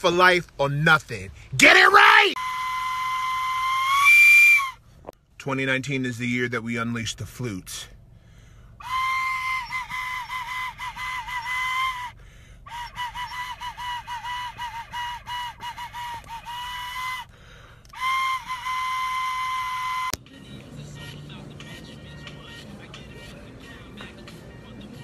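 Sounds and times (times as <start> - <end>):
recorder playing short phrases: 1.6 - 2.7.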